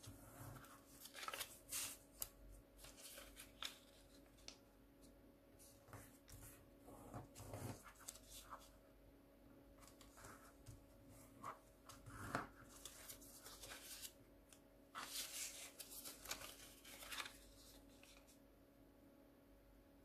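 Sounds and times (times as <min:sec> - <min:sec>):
paper crinkling and rustling: 0:00.0 - 0:04.6, 0:07.1 - 0:08.8, 0:09.8 - 0:14.2, 0:14.9 - 0:18.4.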